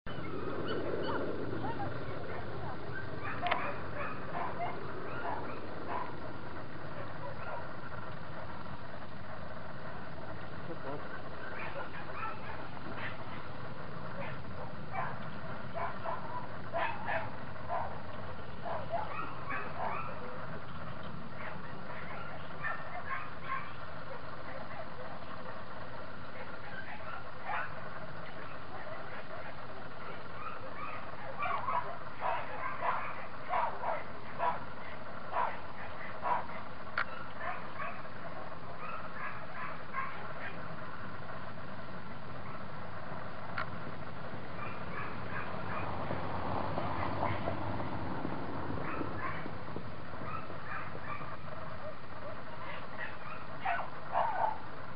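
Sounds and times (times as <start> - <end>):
low background hum: 0.1 - 54.9
dog barking and yipping: 0.2 - 6.3, 6.9 - 7.8, 11.4 - 13.5, 14.2 - 20.4, 21.4 - 23.8, 26.5 - 40.7, 44.6 - 46.0, 46.8 - 47.6, 48.8 - 49.5, 50.2 - 54.6.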